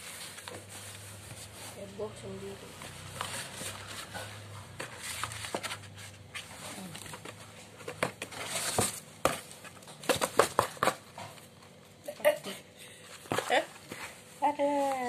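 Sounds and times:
crumpled paper rustling: 0:02.6 - 0:11.6
cat claws scratching cardboard: 0:02.8 - 0:11.6.

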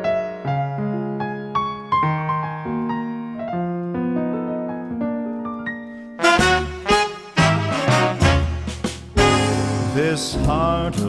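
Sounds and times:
slow gentle piano melody: 0:00.0 - 0:06.7.

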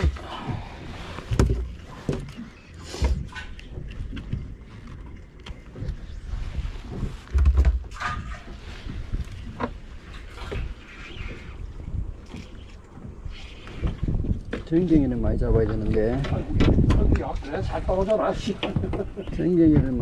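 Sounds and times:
heavy dull thumps on boat: 0:00.0 - 0:02.3, 0:18.0 - 0:20.0.

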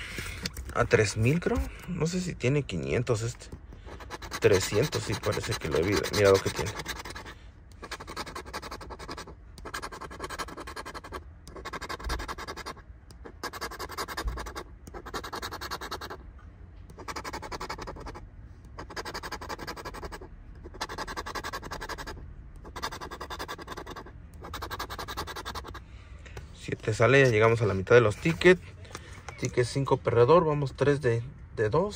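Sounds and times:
scratcher scraping lottery ticket: 0:03.9 - 0:16.2, 0:17.0 - 0:25.8.

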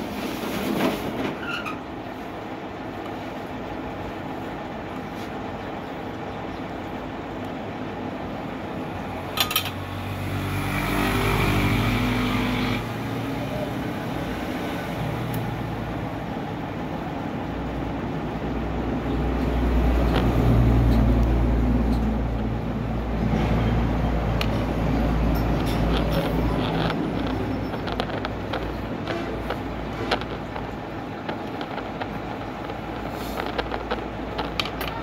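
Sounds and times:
passing road traffic rumble: 0:00.0 - 0:35.0
sharp clicks: 0:25.4 - 0:35.0.

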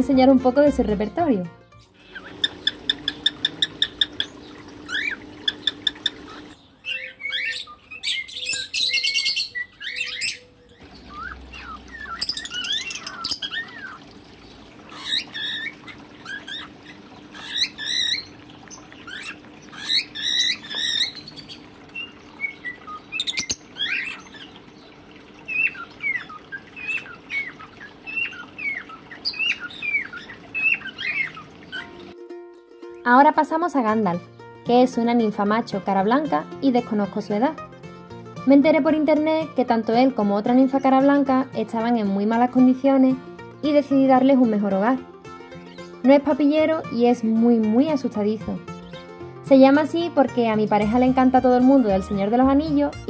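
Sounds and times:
cockatiel singing: 0:01.9 - 0:14.0, 0:14.9 - 0:24.6, 0:25.5 - 0:32.1.

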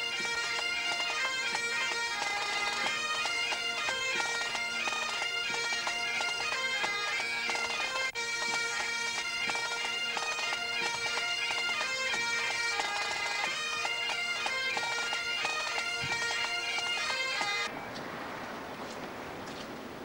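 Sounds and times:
bagpipes playing a tune: 0:00.0 - 0:18.0.

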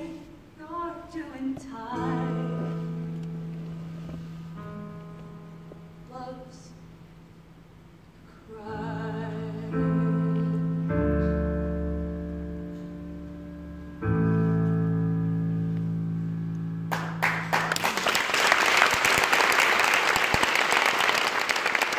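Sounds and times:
piano chords: 0:01.9 - 0:18.2
audience applause: 0:16.9 - 0:21.9.

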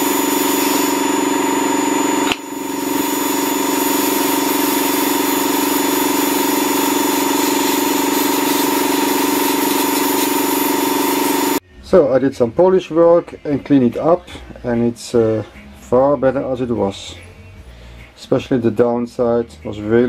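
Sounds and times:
sandblasting hiss: 0:00.0 - 0:11.6
vacuum cleaner humming: 0:00.0 - 0:11.6.

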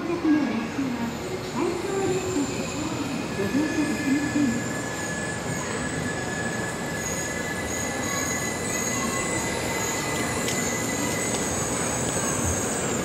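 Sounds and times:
train rumbling: 0:00.0 - 0:13.0
high steady squeal: 0:01.6 - 0:13.0.

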